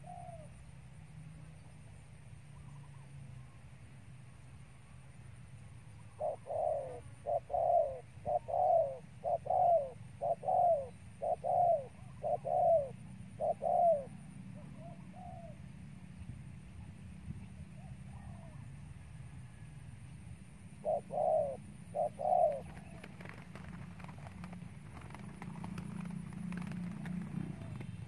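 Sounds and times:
dove cooing: 0:00.0 - 0:00.6, 0:06.1 - 0:15.7, 0:17.8 - 0:18.6, 0:20.8 - 0:28.0.

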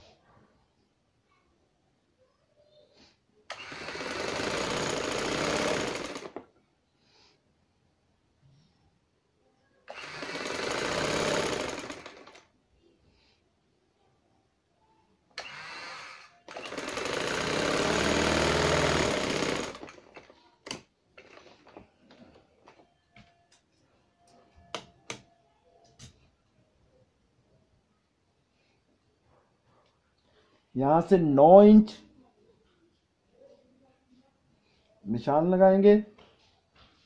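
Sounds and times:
sewing machine stitching: 0:03.5 - 0:06.5, 0:09.9 - 0:12.5, 0:15.4 - 0:22.8.

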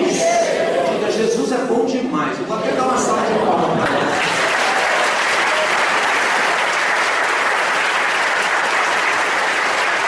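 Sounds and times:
crowd applauding: 0:03.8 - 0:10.0.

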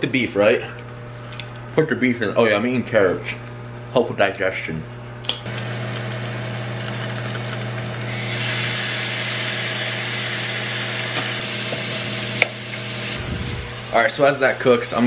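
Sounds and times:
microwave humming: 0:04.9 - 0:15.0
meat sizzling in a frying pan: 0:08.1 - 0:11.9.

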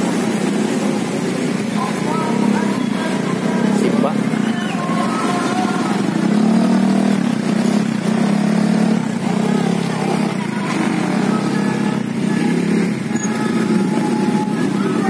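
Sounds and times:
motorbike and scooter engines: 0:00.0 - 0:15.0.

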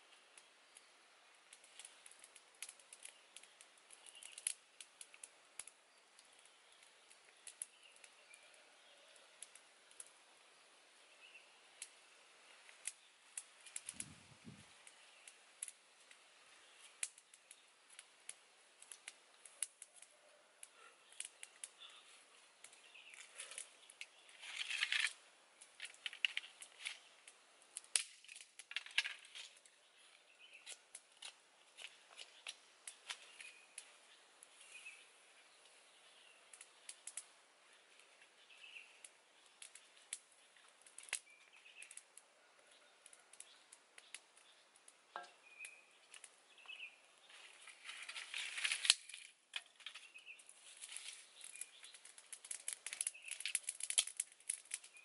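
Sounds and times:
rustling of twigs and leaves: 0:00.0 - 0:55.0
wood fire crackling: 0:00.0 - 0:55.0
bird chirps: 0:33.2 - 0:37.1, 0:37.7 - 0:39.7, 0:41.2 - 0:42.0, 0:42.6 - 0:47.4, 0:50.0 - 0:50.5, 0:51.2 - 0:52.1, 0:53.0 - 0:53.5.

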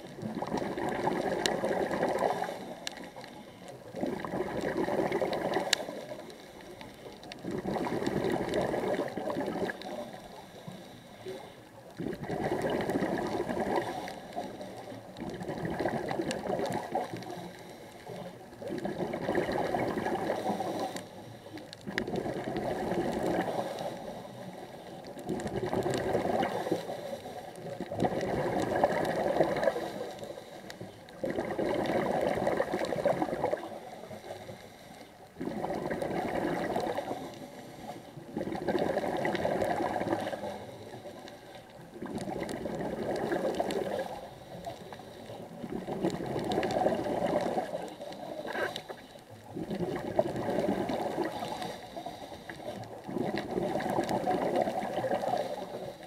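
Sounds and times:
underwater exhaled bubbles: 0:00.0 - 0:56.0
diver breathing in: 0:05.5 - 0:11.9, 0:13.3 - 0:15.1, 0:16.8 - 0:18.4, 0:19.6 - 0:21.9, 0:22.6 - 0:25.1, 0:25.9 - 0:27.6, 0:29.2 - 0:31.2, 0:33.5 - 0:35.8, 0:36.5 - 0:38.2, 0:43.4 - 0:45.7, 0:50.6 - 0:53.0, 0:54.8 - 0:56.0.

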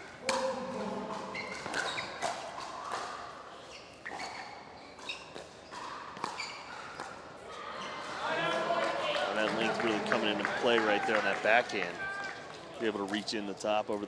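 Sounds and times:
shoe squeaks: 0:01.3 - 0:02.6, 0:03.5 - 0:08.0.

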